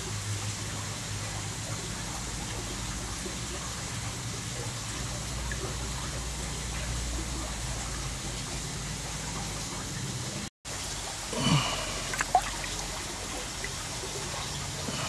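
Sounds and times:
water trickling: 0:00.0 - 0:15.0.

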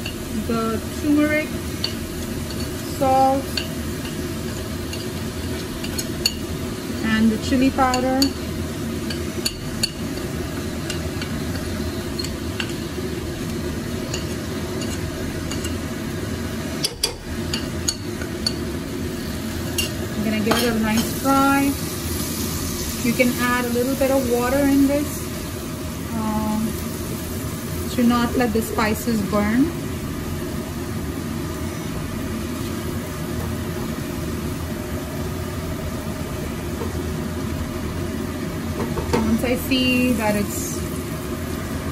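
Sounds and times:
spices sizzling in hot oil: 0:00.0 - 0:41.9
metal spoon clinking: 0:09.1 - 0:12.8, 0:16.8 - 0:18.6.

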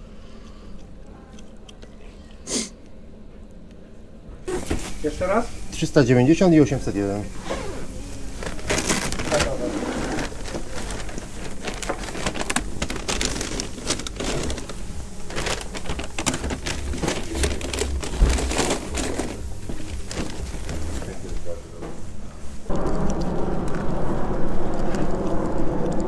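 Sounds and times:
paper bag being packed: 0:07.0 - 0:22.0
insulated backpack rustling: 0:08.3 - 0:21.5.

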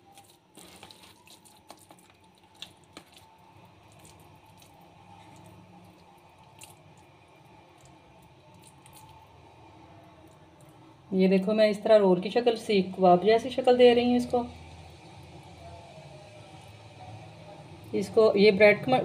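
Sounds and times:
hands squishing food mixture: 0:00.0 - 0:11.0.

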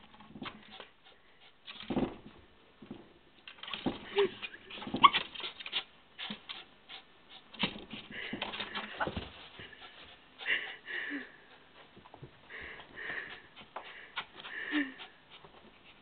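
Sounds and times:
knocks and scrabbling: 0:00.0 - 0:00.9, 0:01.6 - 0:06.8, 0:07.5 - 0:10.2.

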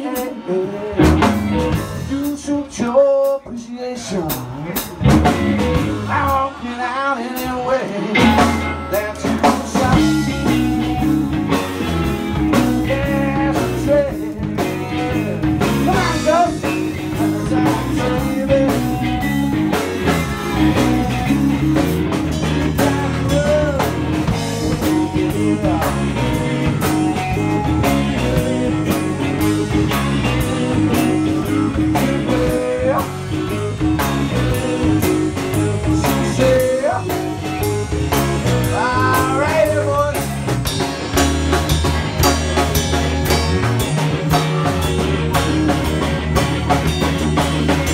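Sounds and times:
person singing: 0:00.0 - 0:05.2, 0:05.9 - 0:11.7, 0:12.3 - 0:19.4, 0:22.3 - 0:40.3
live blues band: 0:00.0 - 0:47.9.

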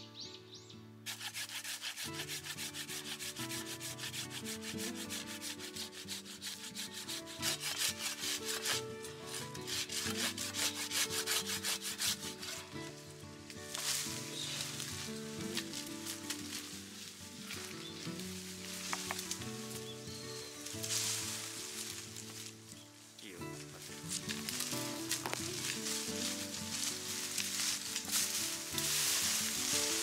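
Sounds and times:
hand saw cutting wood: 0:01.1 - 0:13.0, 0:18.8 - 0:20.0, 0:24.2 - 0:30.0.

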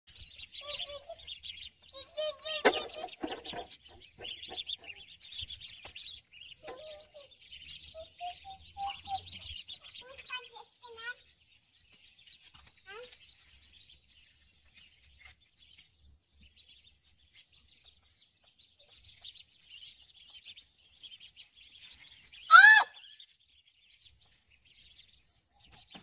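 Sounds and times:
ducklings peeping: 0:00.1 - 0:26.0
loud short cry: 0:22.5 - 0:22.9.

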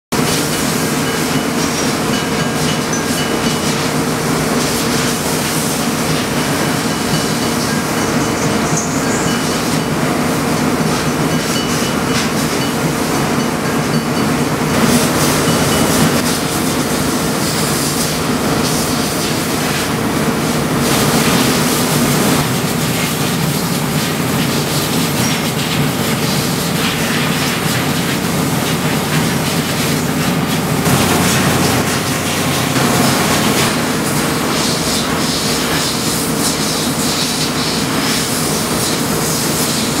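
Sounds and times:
machinery humming: 0:00.2 - 0:40.0
rushing noise surges: 0:29.8 - 0:35.9.

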